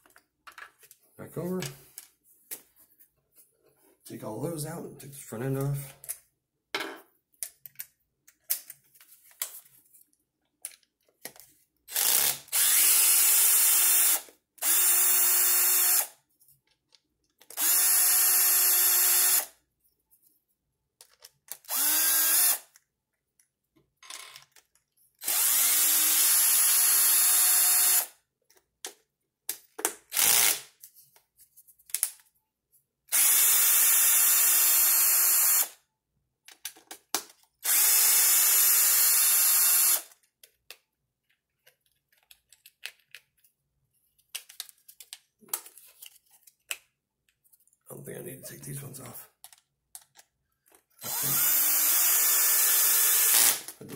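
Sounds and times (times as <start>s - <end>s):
power driver whirring: 12.0s - 16.1s, 21.7s - 22.6s, 51.0s - 53.6s.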